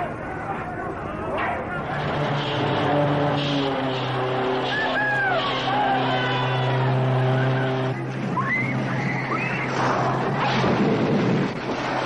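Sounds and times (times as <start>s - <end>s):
crowd shouting: 0.0s - 10.3s
vehicle engine droning: 0.0s - 12.0s
whistles from crowd: 8.4s - 9.7s.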